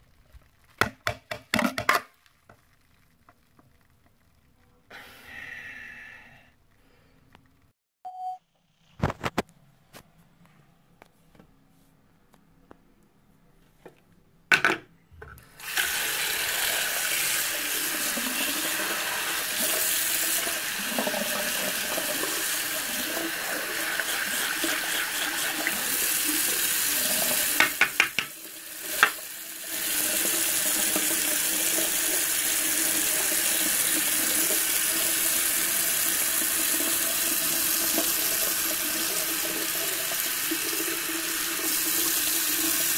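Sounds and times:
tap running into sink: 0:27.4 - 0:29.3.

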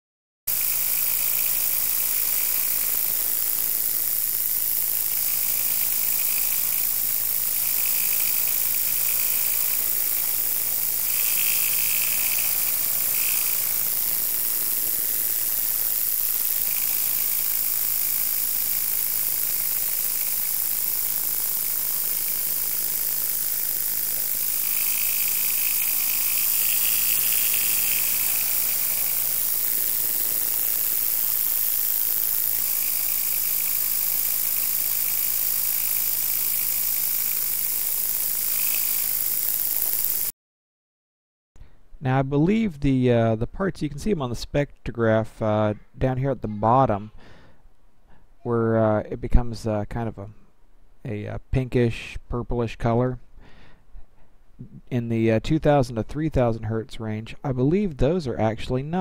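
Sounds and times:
high-pitched engine knock: 0:00.5 - 0:40.3.

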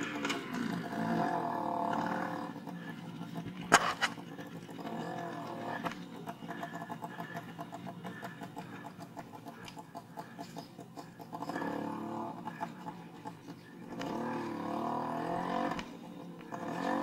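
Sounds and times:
scooter jolting with sharp knocks: 0:00.0 - 0:01.2, 0:03.4 - 0:06.5
scooter engines revving: 0:00.0 - 0:17.0.

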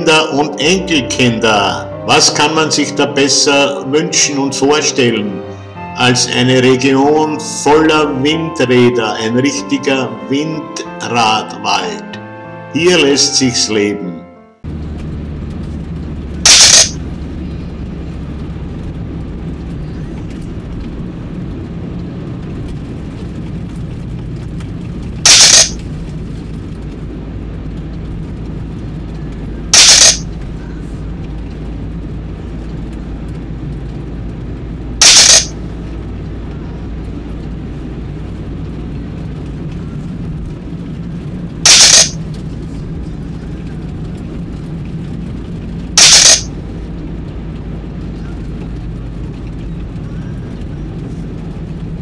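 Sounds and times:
car driving rumble from inside: 0:14.7 - 0:25.2, 0:25.8 - 0:35.0, 0:35.6 - 0:41.6, 0:42.2 - 0:52.0.

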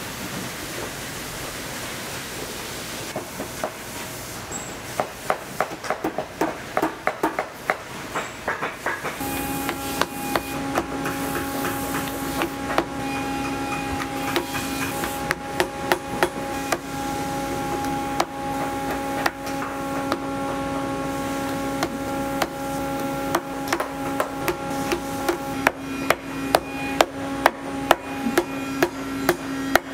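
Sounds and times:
hammer tapping on a boot: 0:08.6 - 0:16.8
steady machine hum: 0:09.2 - 0:29.9.

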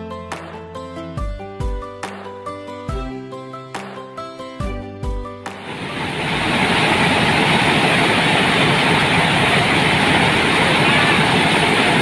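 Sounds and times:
rice milling machine running: 0:05.6 - 0:12.0.

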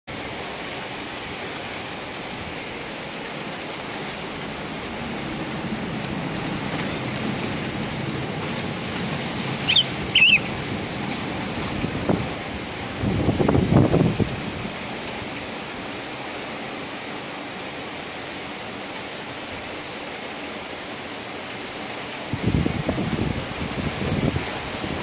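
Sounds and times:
heavy rain pouring: 0:00.1 - 0:25.0
short high chirps: 0:09.7 - 0:10.5.

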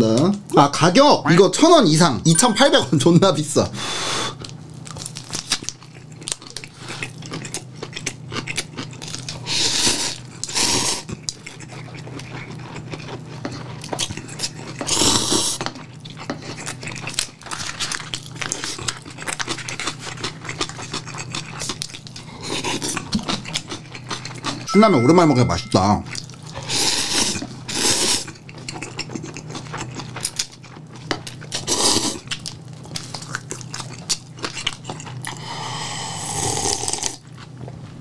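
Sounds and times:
low steady hum: 0:01.5 - 0:03.8, 0:24.6 - 0:26.5
wet chewing clicks: 0:11.1 - 0:24.7, 0:28.2 - 0:35.4.

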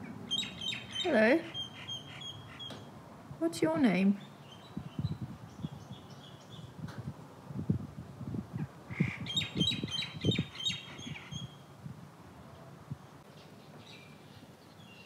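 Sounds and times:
bird chirping: 0:00.3 - 0:02.9, 0:04.2 - 0:06.7, 0:09.2 - 0:11.6, 0:13.2 - 0:15.0.

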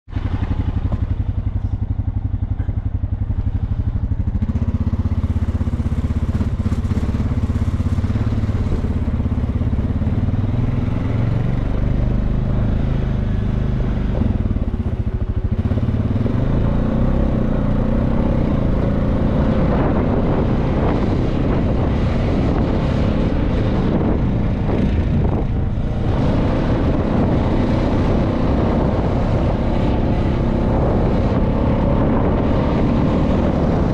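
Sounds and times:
vehicle engine running: 0:00.1 - 0:33.9.

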